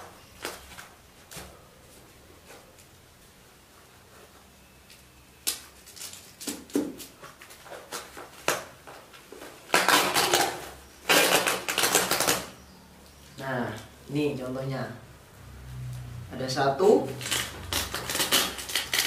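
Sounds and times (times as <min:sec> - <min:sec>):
packing rustling and crinkling: 0:05.6 - 0:12.5.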